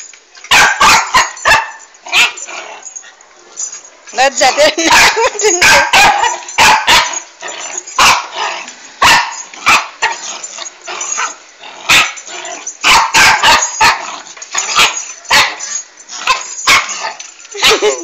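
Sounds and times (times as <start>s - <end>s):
dog barking in sharp yaps: 0.5s - 2.3s, 4.9s - 7.2s, 12.9s - 14.0s.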